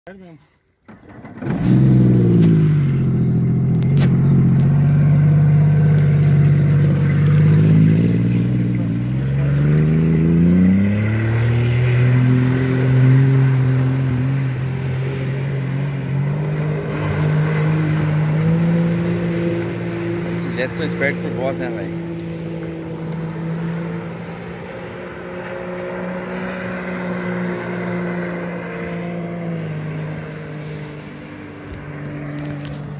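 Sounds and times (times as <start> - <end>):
watercraft engine drone: 0.8 - 32.9
jet ski engine idling: 13.3 - 25.7.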